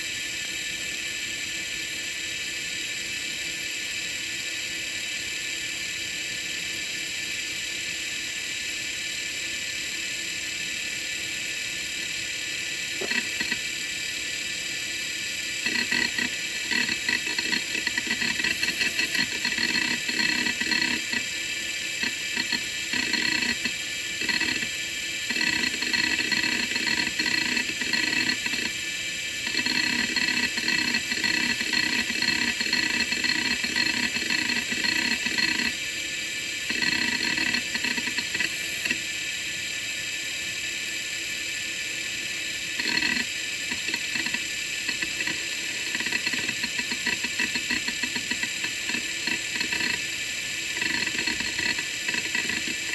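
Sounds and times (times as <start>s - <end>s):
hard drive spindle whine: 0.0s - 52.9s
hard drive head chattering: 12.8s - 13.8s, 15.5s - 35.8s, 36.6s - 39.1s, 42.6s - 52.9s.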